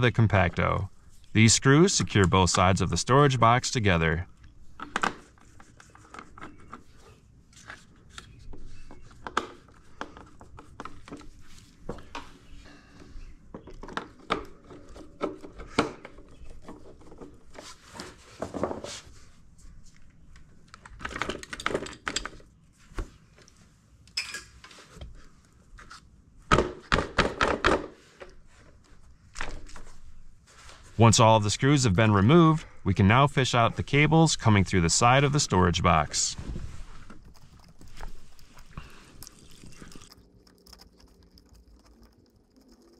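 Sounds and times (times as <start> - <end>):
clicks and knocks of plastic parts: 20.7 - 22.5.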